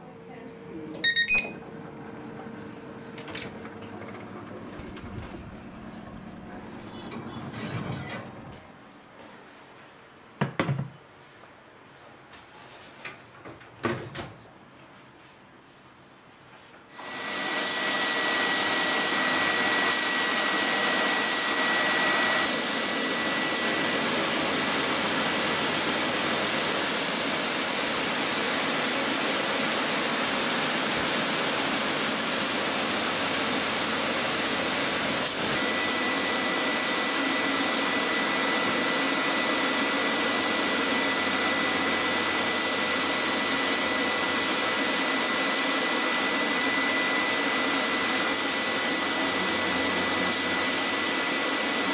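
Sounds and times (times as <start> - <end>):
dust extraction running: 1.4 - 8.6, 17.0 - 51.9
belt grinder running: 48.2 - 51.9.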